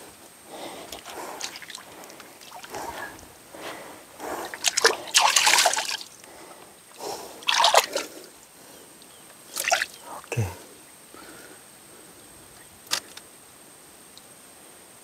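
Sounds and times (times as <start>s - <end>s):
muddy water sloshing and splashing: 0.5s - 6.2s, 7.4s - 8.2s, 9.5s - 10.2s.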